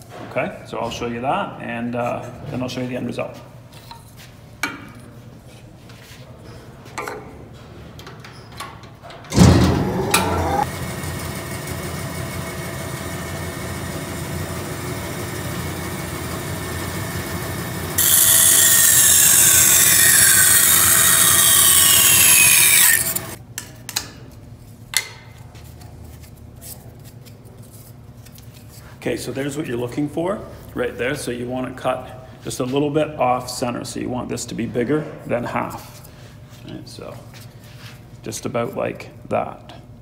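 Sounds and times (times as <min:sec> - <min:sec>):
bandsaw running: 0:09.4 - 0:23.4
bandsaw blade cutting plastic pipe: 0:18.0 - 0:23.4.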